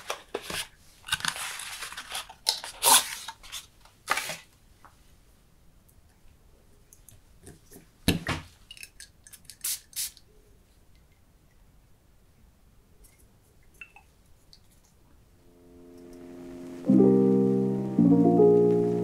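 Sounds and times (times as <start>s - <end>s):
paperboard scraping and rustling: 0.0s - 4.5s.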